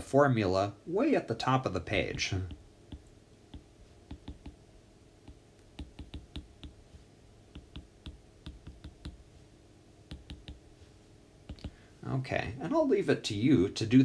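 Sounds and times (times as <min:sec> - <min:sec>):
stylus tapping on glass screen: 0:02.5 - 0:04.6, 0:05.2 - 0:06.9, 0:07.5 - 0:09.3, 0:10.1 - 0:10.7, 0:11.4 - 0:11.8.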